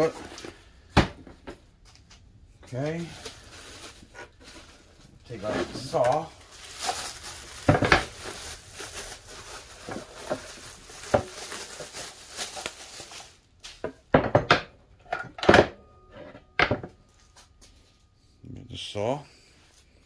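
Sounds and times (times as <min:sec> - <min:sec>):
plastic bag crinkling: 0:02.7 - 0:13.6.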